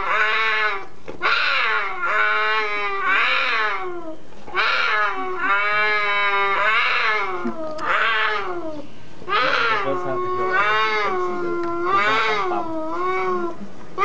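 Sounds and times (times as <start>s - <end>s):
cougars yowling: 0.0s - 14.0s.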